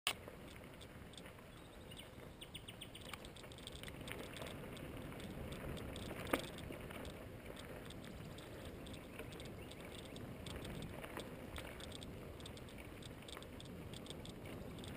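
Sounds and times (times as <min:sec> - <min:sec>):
bicycle tyres rumbling on stony track: 0:00.2 - 0:14.9
clicks and rattles: 0:03.1 - 0:14.9.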